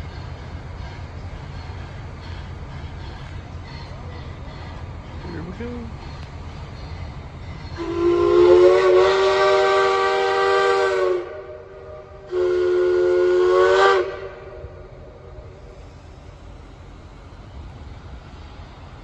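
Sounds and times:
steam hissing: 0:00.0 - 0:19.0
steam whistle blasts: 0:07.7 - 0:15.8.

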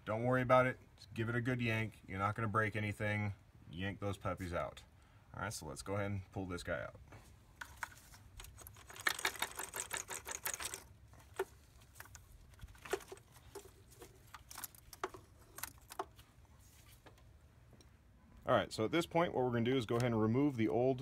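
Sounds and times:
metal and plastic clicking and rattling: 0:07.6 - 0:16.3.

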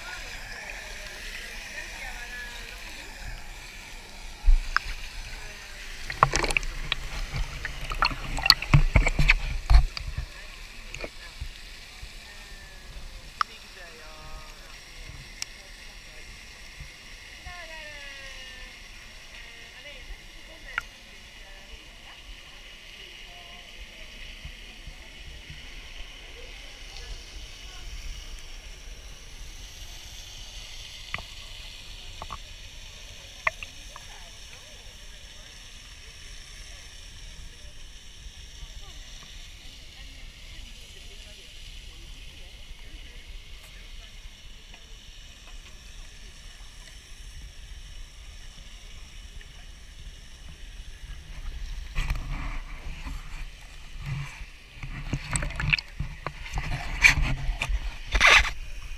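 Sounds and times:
water sloshing and lapping: 0:00.0 - 0:14.6, 0:51.4 - 0:58.9
water hissing: 0:00.0 - 0:58.9
water splashes with low knocks: 0:04.0 - 0:11.6, 0:51.3 - 0:58.5.

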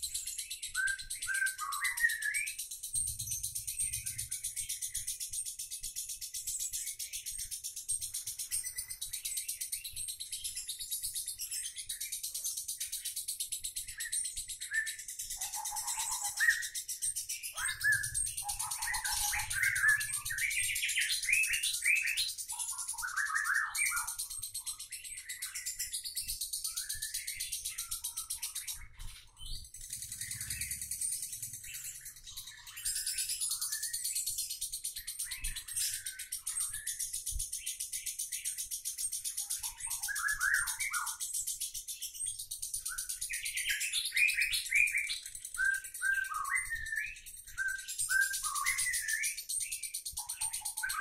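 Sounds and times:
lovebird chattering trill: 0:15.3 - 0:23.6, 0:29.4 - 0:34.0
lower squeaky bird notes: 0:29.8 - 0:33.1.

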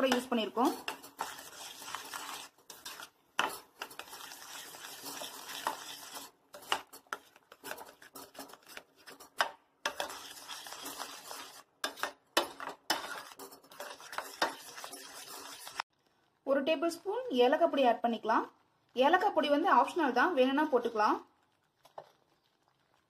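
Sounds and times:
metal spoon scraping steel pan: 0:00.0 - 0:15.8.

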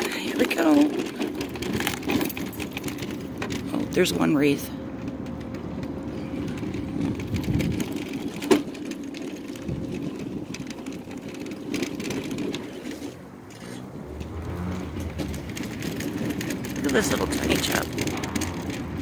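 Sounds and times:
mobility scooter motor hum: 0:00.0 - 0:19.0
tyre rumble on pavement: 0:00.0 - 0:19.0.

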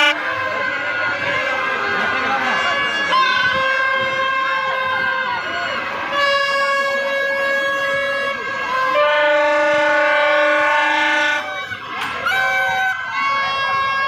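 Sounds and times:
crowd noise: 0:00.0 - 0:14.0
long horn notes: 0:06.0 - 0:14.0.

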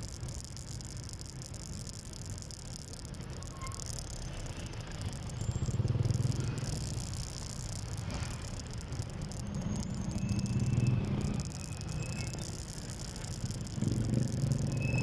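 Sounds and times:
road noise: 0:00.0 - 0:15.0
small motorcycle engine running: 0:00.0 - 0:15.0.

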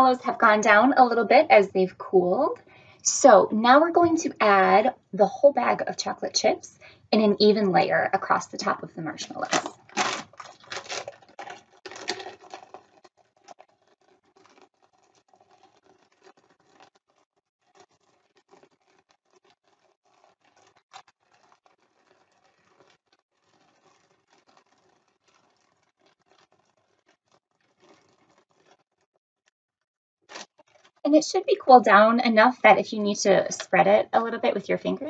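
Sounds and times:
chocolate chips pattering: 0:09.2 - 0:28.9, 0:30.3 - 0:31.1
plastic bag crinkling: 0:09.2 - 0:29.1, 0:30.3 - 0:32.1.

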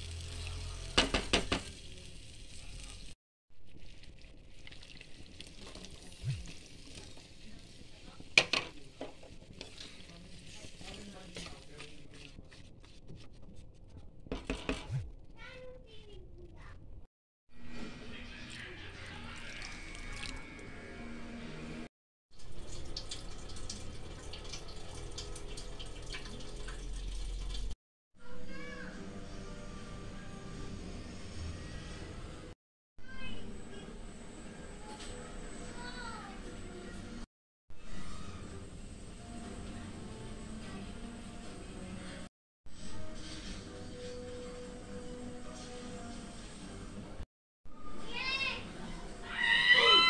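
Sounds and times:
food sizzling in a frying pan: 0:00.0 - 0:03.2, 0:03.8 - 0:11.7
liquid simmering in a pan: 0:03.7 - 0:08.2, 0:22.4 - 0:27.8.

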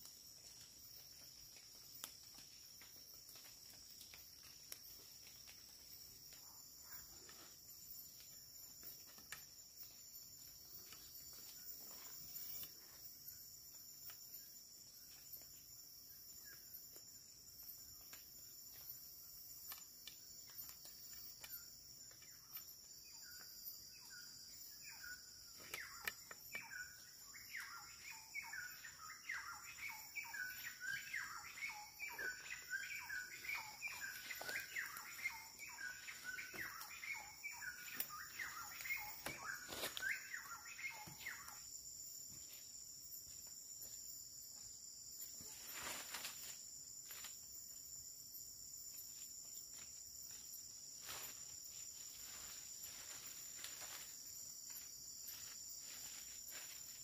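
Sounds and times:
insects droning: 0:00.0 - 0:57.0
bird chirping: 0:24.0 - 0:41.7.

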